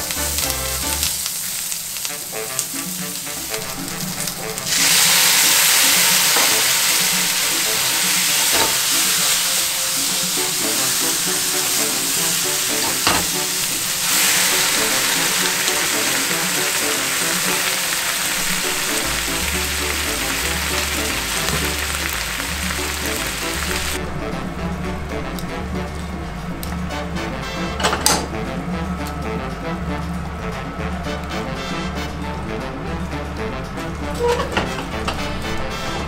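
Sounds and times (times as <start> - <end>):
bass beat: 0.0 - 1.2, 18.6 - 34.2
vegetables sizzling in a frying pan: 0.0 - 24.0
bubbling simmer: 0.0 - 25.3
background music: 0.0 - 36.0.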